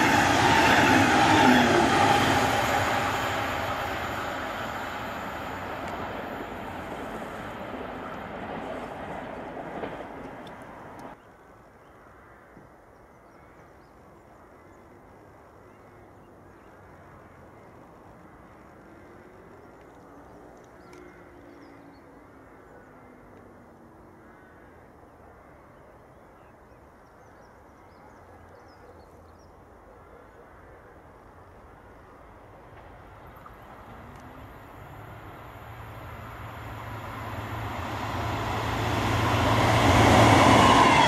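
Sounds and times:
distant locomotive engine: 0:00.0 - 0:11.2, 0:31.3 - 0:41.0
passing train: 0:00.0 - 0:11.2, 0:29.6 - 0:41.0.

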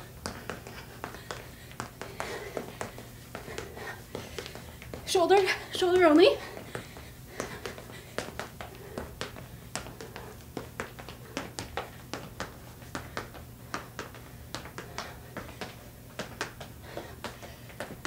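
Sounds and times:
sneakers tapping on wooden floor: 0:00.0 - 0:18.0.

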